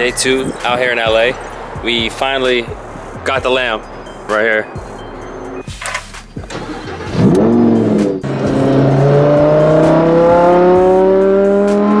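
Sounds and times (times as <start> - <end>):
sports car engine starting and revving: 4.8 - 12.0
car accelerating away: 6.5 - 12.0.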